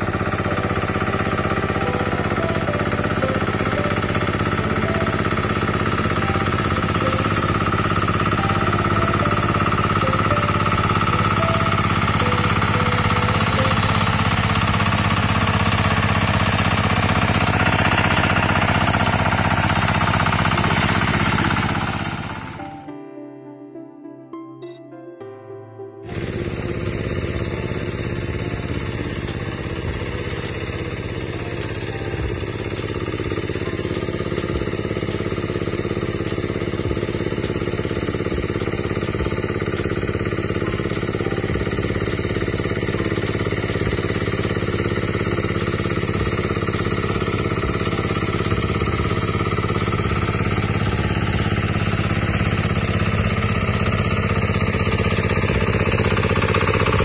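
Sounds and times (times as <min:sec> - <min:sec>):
small engine droning: 0:00.0 - 0:23.0, 0:26.0 - 0:57.0.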